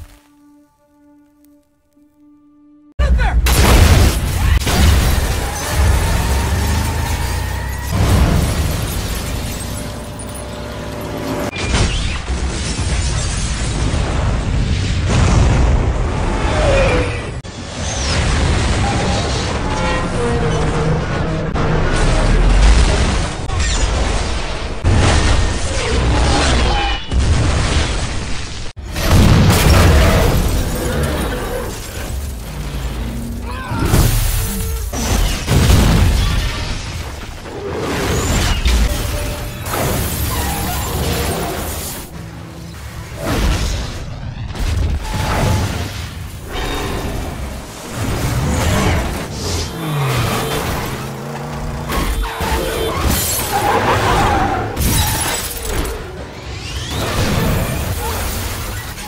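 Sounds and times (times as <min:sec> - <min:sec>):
crashing debris: 0:03.4 - 0:15.8, 0:27.1 - 0:59.0.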